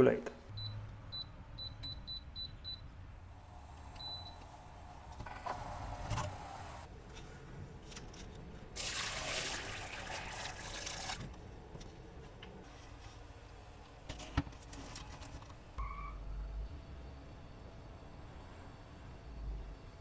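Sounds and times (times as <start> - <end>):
liquid pouring through strainer: 8.8 - 11.2.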